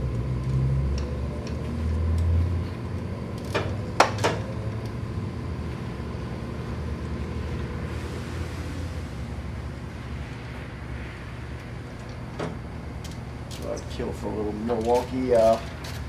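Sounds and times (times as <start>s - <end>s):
ratcheting wrench: 14.6s - 16.0s.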